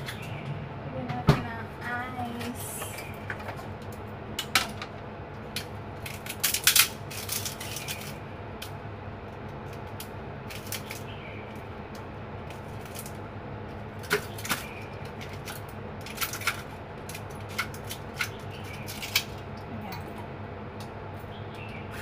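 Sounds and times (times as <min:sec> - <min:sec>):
ice cubes cracking from plastic tray: 0:05.6 - 0:08.2, 0:14.0 - 0:19.4.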